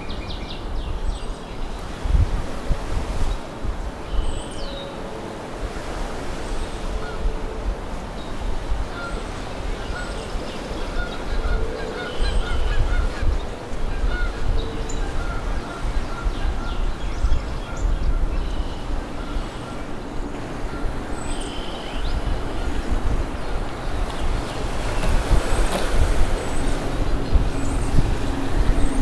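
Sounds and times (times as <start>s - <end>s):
birds calling: 6.2s - 29.0s.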